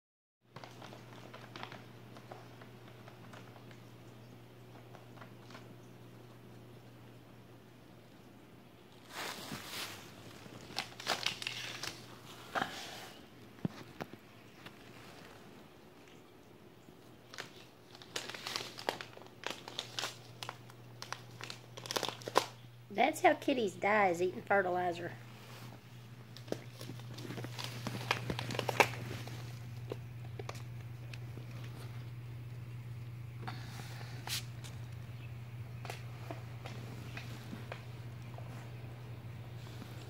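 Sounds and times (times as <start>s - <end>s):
plastic bags crinkling: 0.5s - 4.0s, 9.0s - 12.5s, 17.2s - 22.8s, 25.3s - 40.0s
steady low hum: 22.5s - 40.0s.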